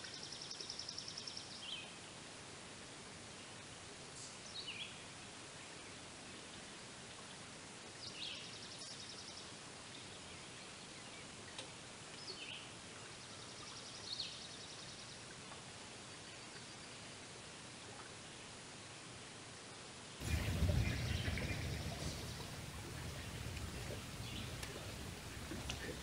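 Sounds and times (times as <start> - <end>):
steady hiss: 18.7 - 26.0
faint songbird calls: 20.2 - 26.0.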